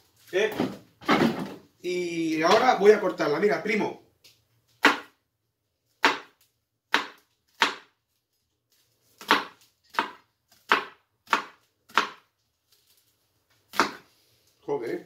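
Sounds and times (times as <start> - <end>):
knife chopping onion: 4.8 - 5.2, 5.9 - 8.0, 9.2 - 12.3, 13.7 - 14.1.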